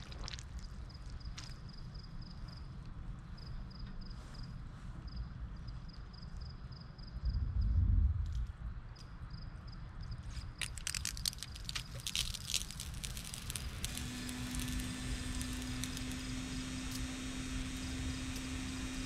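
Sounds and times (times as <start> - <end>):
sprinkler sputtering and crackling: 0.0 - 1.6, 10.6 - 19.0
hiss of sprinkler spray: 12.7 - 19.0.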